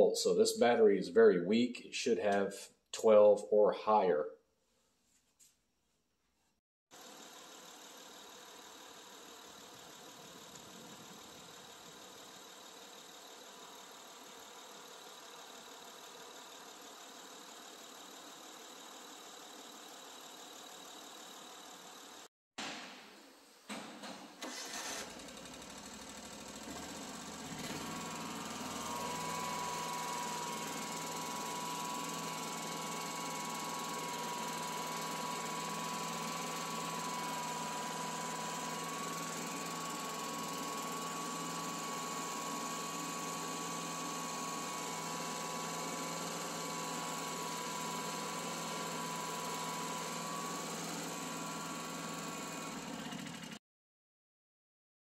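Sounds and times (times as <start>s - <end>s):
mower engine running steadily: 7.1s - 13.2s, 24.4s - 53.6s
mower engine starting: 24.4s - 53.6s.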